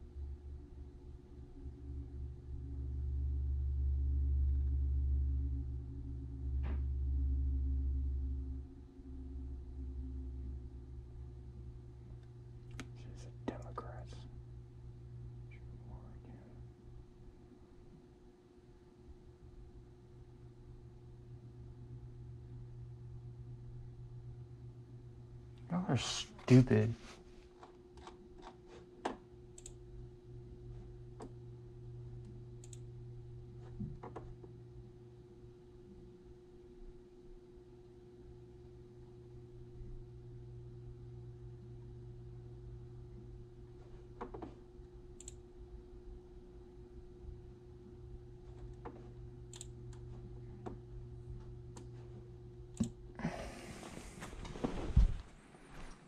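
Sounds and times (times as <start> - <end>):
low electrical hum: 0.0 - 56.0
computer mouse clicks: 27.6 - 29.8, 32.6 - 32.8, 45.2 - 45.4, 48.6 - 50.1
clothing rustling: 53.6 - 56.0.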